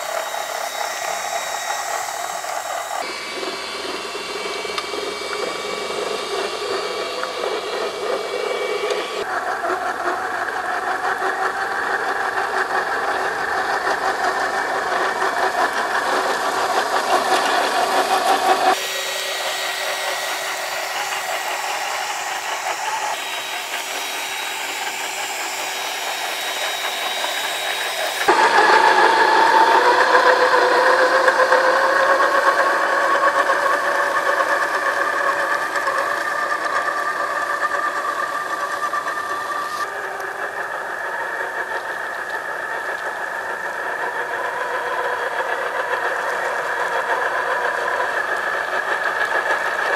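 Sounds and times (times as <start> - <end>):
electric motor whine with rattling: 0.0 - 49.9.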